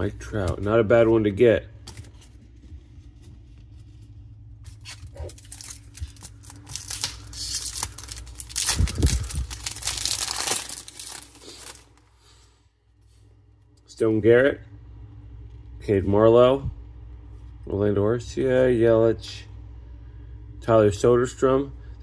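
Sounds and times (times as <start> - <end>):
plastic wrapper tearing and crinkling: 4.7 - 12.1.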